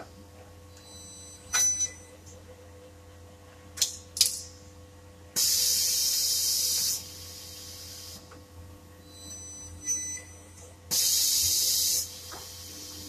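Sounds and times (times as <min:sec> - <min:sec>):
compressed air hissing: 0:05.4 - 0:08.2, 0:10.9 - 0:13.0.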